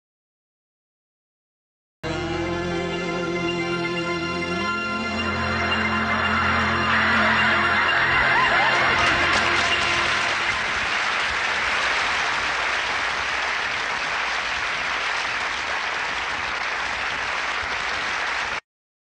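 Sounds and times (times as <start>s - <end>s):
studio audience applauding: 5.0s - 18.6s.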